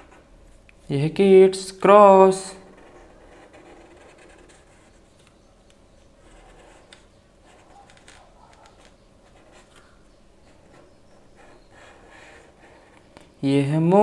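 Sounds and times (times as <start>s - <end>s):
marker pen scratching on paper: 0.0s - 0.3s, 2.5s - 5.2s, 6.2s - 13.2s.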